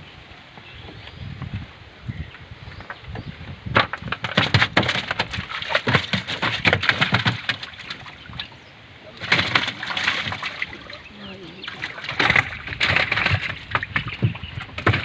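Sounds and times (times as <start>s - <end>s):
wet splashing and knocking in canoe: 2.8s - 8.6s, 9.2s - 15.0s.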